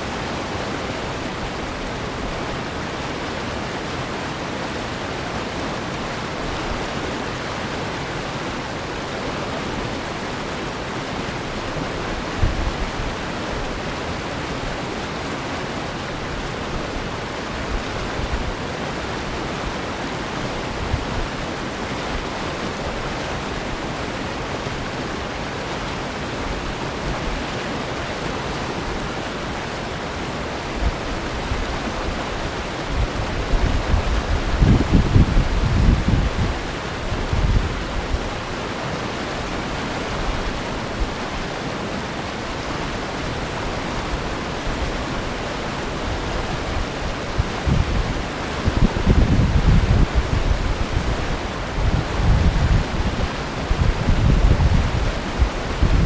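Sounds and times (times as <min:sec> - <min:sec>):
river rapids rushing: 0:00.0 - 0:56.0
wind bumps on microphone: 0:32.9 - 0:38.3, 0:46.2 - 0:56.0.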